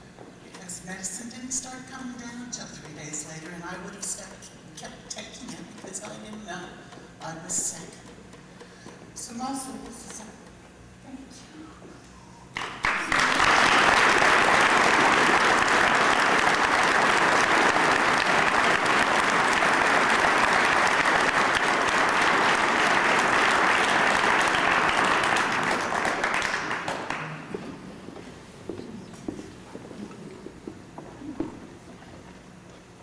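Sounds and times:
audience applauding: 12.5s - 27.6s.

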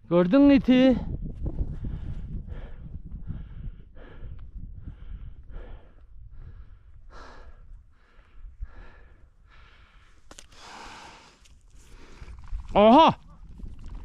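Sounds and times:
man breathing hard: 1.6s - 12.5s.

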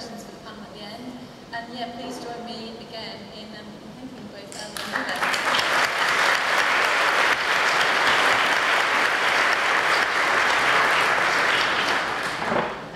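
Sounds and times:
audience clapping: 4.8s - 12.9s.

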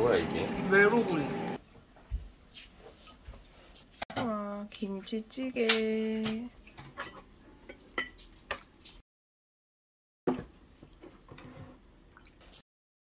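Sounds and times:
cutlery clinking on dishes: 6.8s - 8.7s.

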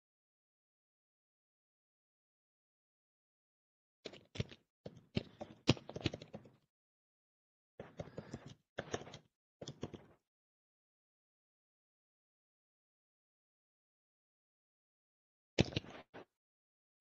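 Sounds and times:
keyboard typing: 7.8s - 10.2s.

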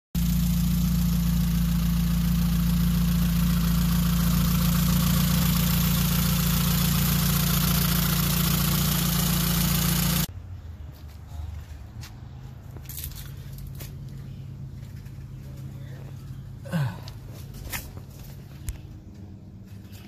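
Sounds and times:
car engine idling: 0.2s - 20.0s.

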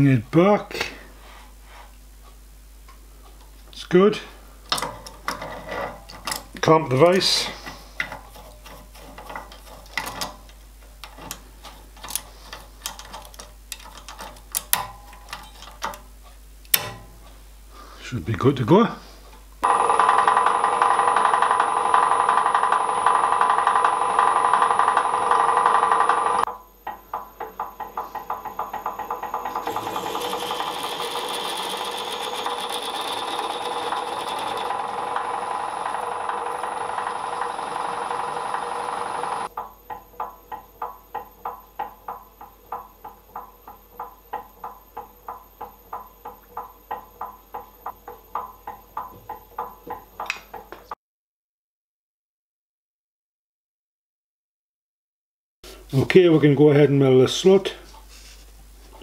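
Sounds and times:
drilling machine cutting steel: 19.6s - 26.5s, 27.1s - 39.6s
rapid mechanical pulsing: 19.6s - 50.2s.

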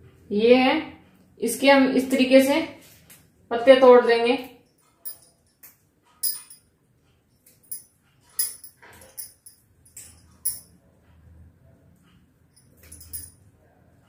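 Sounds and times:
glass bangles clinking: 4.7s - 6.7s, 7.4s - 10.8s, 12.6s - 13.4s.

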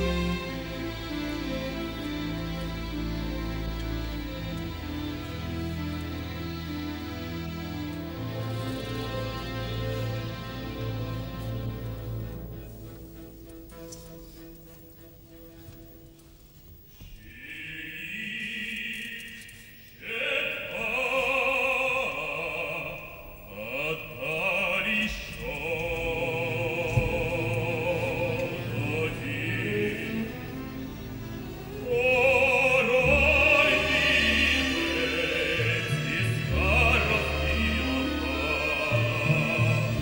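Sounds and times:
male opera singer with vibrato: 0.0s - 2.3s, 17.2s - 40.0s
orchestra: 0.0s - 40.0s.

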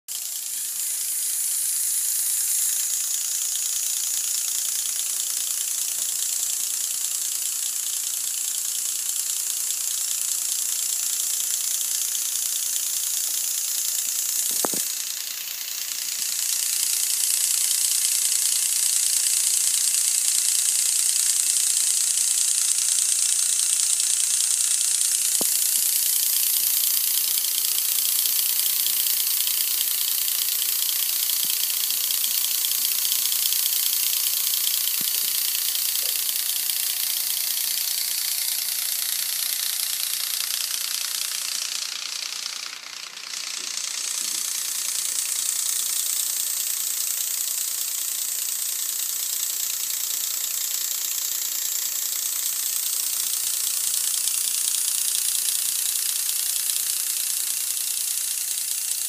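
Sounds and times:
electric motors and gears whirring: 0.1s - 59.0s
sharp click: 13.8s - 15.1s, 16.3s - 41.5s, 42.3s - 46.3s.

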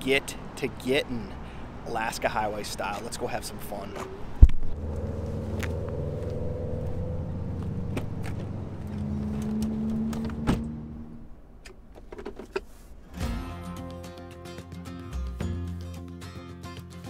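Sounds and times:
vehicle engine idling: 1.2s - 11.9s
car door shutting: 7.8s - 12.7s.

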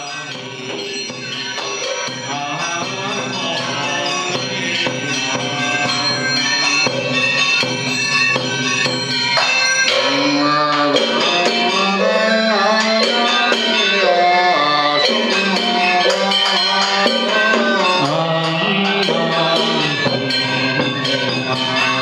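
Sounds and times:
instrumental accompaniment: 0.0s - 22.0s
percussion strokes: 0.0s - 22.0s
man chanting in long held notes: 2.2s - 7.1s, 10.0s - 22.0s.

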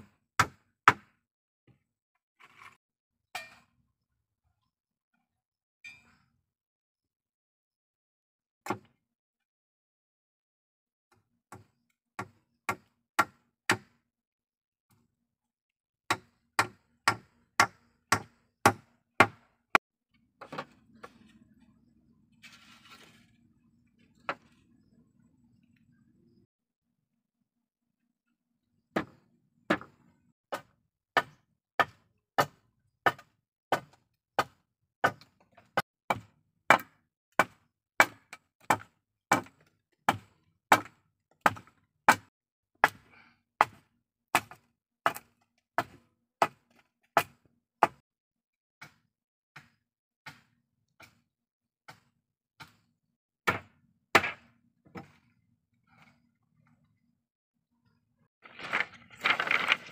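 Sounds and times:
tool striking bamboo pole: 0.4s - 1.2s, 16.1s - 19.5s, 29.0s - 35.3s, 36.1s - 43.0s, 48.8s - 51.2s, 51.9s - 52.8s, 53.4s - 55.2s.

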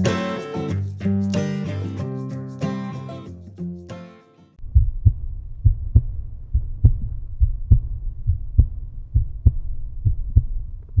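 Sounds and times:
heartbeat thumps: 4.6s - 11.0s.

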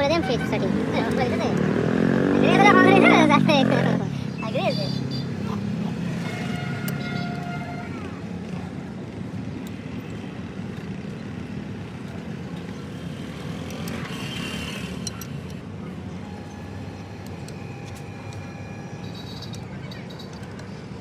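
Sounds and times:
low rumble of motor vehicles: 0.0s - 21.0s
metallic clicks of hand wrench: 13.6s - 15.7s, 16.4s - 20.8s.

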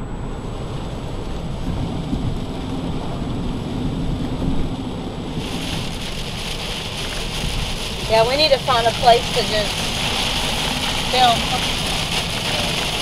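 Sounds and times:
heavy rain on a car: 0.4s - 13.0s.

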